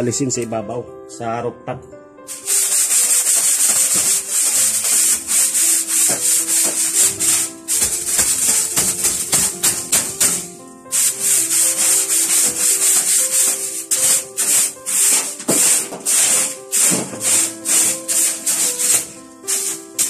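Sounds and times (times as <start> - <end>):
background music: 0.0 - 20.0
broom sweeping metal floor: 2.3 - 20.0.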